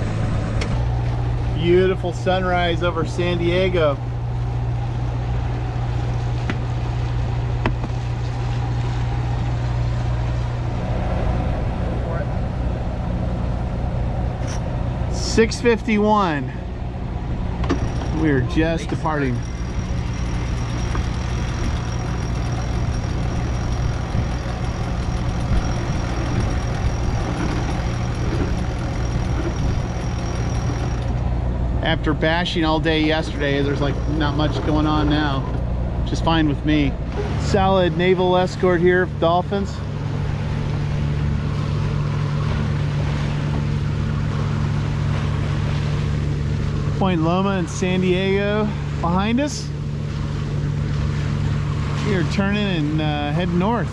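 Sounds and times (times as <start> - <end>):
diesel engine running: 0.0 - 53.9
water rushing along hull: 0.0 - 53.9.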